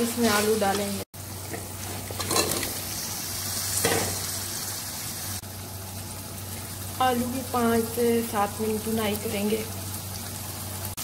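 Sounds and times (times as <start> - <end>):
masala sizzling in oil: 0.0 - 11.0.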